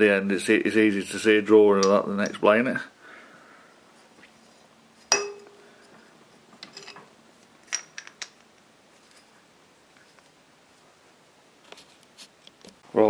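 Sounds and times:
metal engine parts clinking: 6.6 - 8.4.

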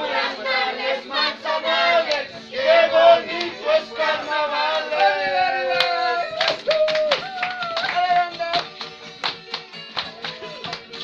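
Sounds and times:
group of voices singing: 0.0 - 6.6.

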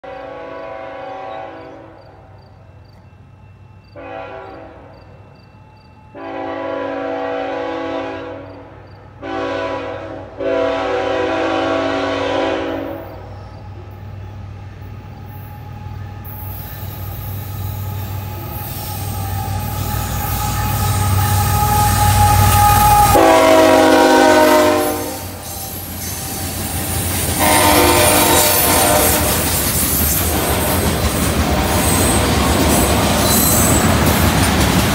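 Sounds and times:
locomotive horn blasts: 0.0 - 2.0, 4.0 - 4.9, 6.2 - 8.6, 9.2 - 13.3, 18.4 - 25.5, 27.4 - 29.6
locomotive engine rumble: 10.4 - 34.9
steel wheel squeal: 16.2 - 23.2, 25.2 - 27.2, 29.3 - 34.4
freight cars rolling by: 24.6 - 34.9.

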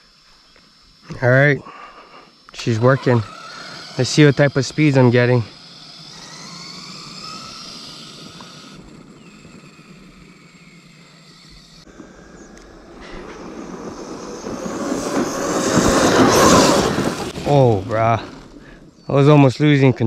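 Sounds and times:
electric motor whine: 0.0 - 19.1
tyres tearing through dirt: 2.3 - 18.8.

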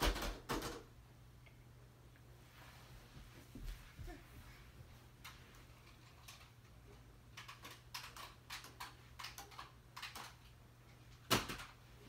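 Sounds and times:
light clicks and taps of toys: 5.2 - 11.8.

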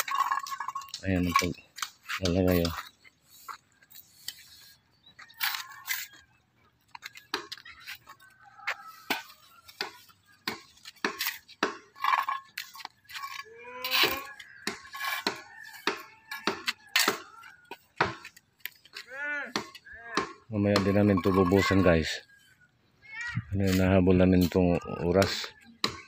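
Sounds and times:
shovel scraping on concrete: 0.0 - 6.3, 7.2 - 18.4.

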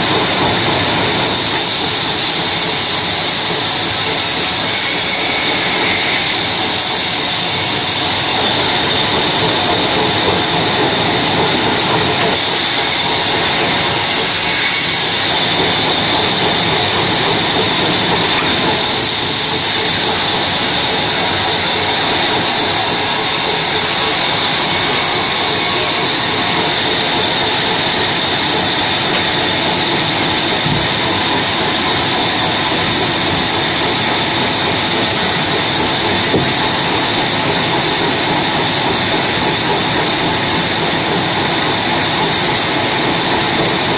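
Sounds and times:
band saw cutting through wood: 0.0 - 43.9.

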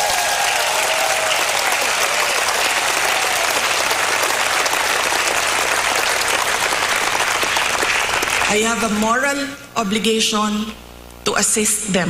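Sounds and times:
audience applause: 0.0 - 9.1.

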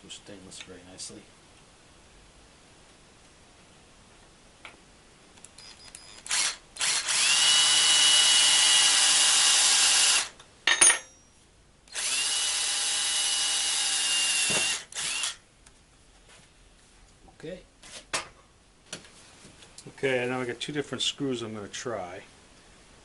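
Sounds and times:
electric drill boring steel: 6.1 - 10.3, 11.9 - 15.4.

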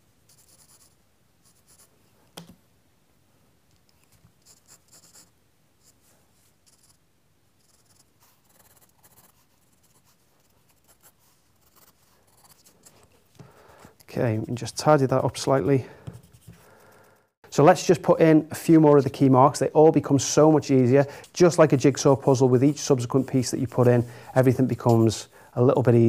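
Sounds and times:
pencil scratching on paper: 0.3 - 1.9, 4.4 - 5.3, 7.6 - 13.2, 16.0 - 17.2, 21.4 - 25.3.

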